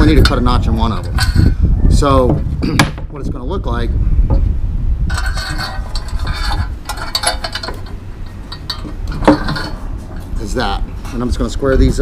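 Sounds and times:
small metallic clinks: 0:05.1 - 0:10.4.

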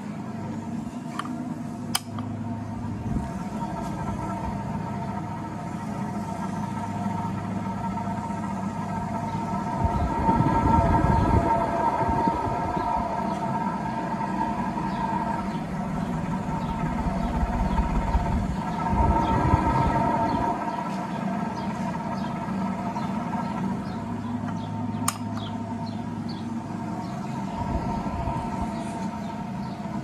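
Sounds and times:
ceiling fan motor whine: 0:00.0 - 0:30.0
sharp click: 0:01.1 - 0:02.3, 0:25.0 - 0:25.5
low rumble: 0:02.6 - 0:30.0.

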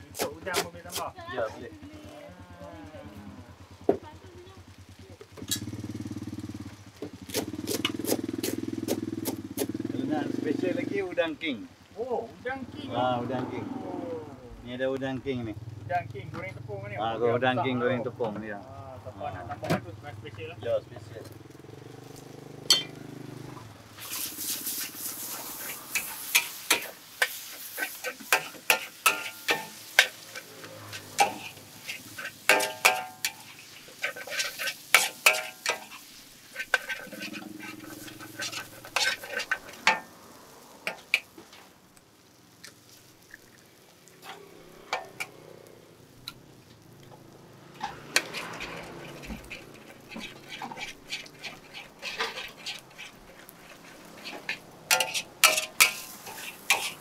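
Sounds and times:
metal utensils clinking on plates: 0:22.7 - 0:23.0, 0:25.9 - 0:36.0, 0:54.1 - 0:57.0.

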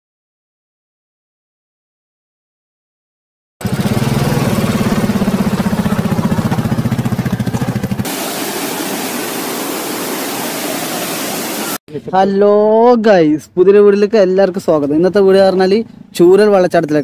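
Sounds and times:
motorcycle engine thumping: 0:03.6 - 0:08.1
steady rushing noise: 0:07.9 - 0:11.8.

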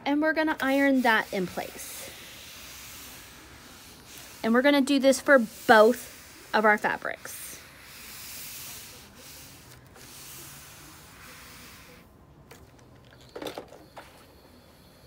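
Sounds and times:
iron swishing over paper: 0:00.2 - 0:12.1.

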